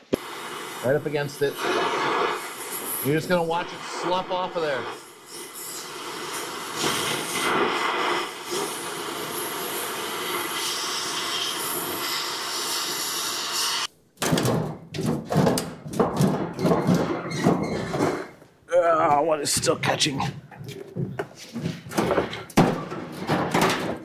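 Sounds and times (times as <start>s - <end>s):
cutting torch hissing: 0.0s - 13.9s
short knocks and clatter: 14.2s - 18.4s, 19.6s - 24.0s.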